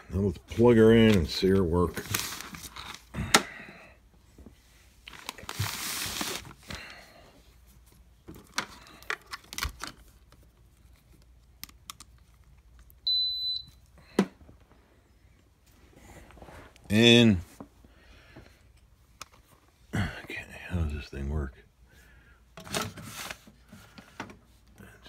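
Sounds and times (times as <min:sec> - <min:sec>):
cord and plug rustling: 0:05.0 - 0:06.8.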